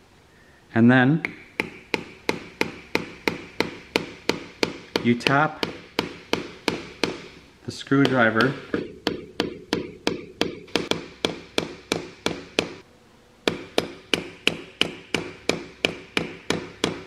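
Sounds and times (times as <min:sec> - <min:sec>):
hammer tapping on screwdriver: 0:01.2 - 0:07.4, 0:08.0 - 0:12.8.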